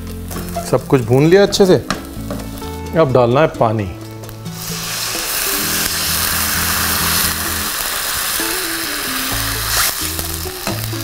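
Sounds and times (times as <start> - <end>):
background music with bass line: 0.0 - 11.0
water hissing in hot oil: 4.5 - 11.0.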